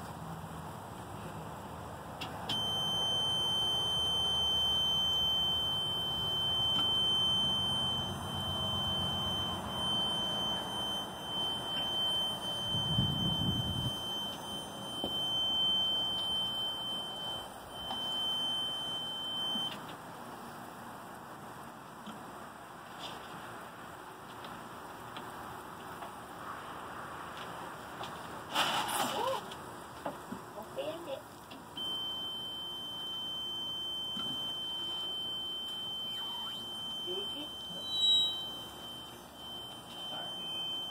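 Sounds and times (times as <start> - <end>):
reverse warning buzzer: 2.5 - 19.8, 31.8 - 40.9.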